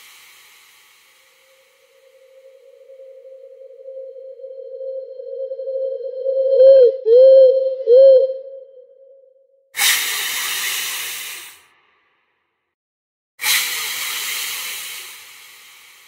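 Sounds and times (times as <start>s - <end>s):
wavering tone: 2.0s - 9.2s
sudden hisses: 9.8s - 11.6s.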